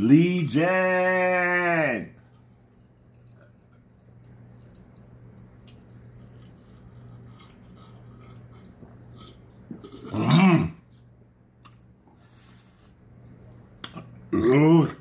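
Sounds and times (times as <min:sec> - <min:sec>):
man swallowing: 0:13.9 - 0:15.0.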